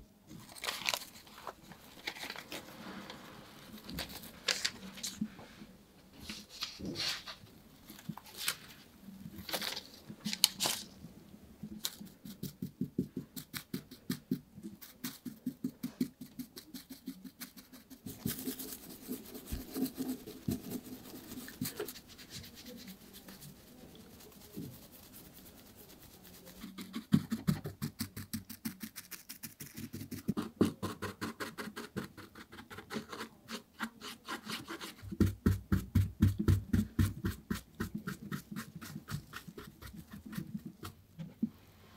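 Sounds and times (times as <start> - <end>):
foil and paper rustling: 0.4 - 5.2, 9.4 - 10.9
brush flicking over foil: 14.8 - 30.4.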